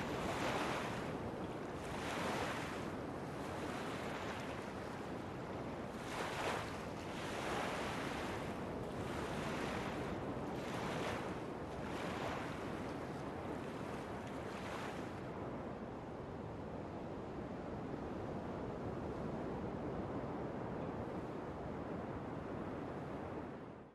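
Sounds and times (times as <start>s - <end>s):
water lapping and splashing: 0.0s - 15.3s
wind-like rushing noise: 0.0s - 23.8s.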